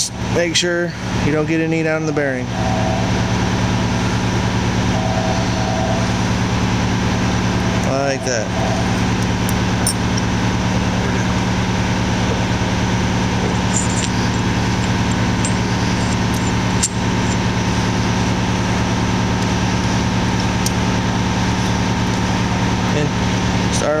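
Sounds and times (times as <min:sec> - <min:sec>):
machinery humming: 0:00.0 - 0:24.0.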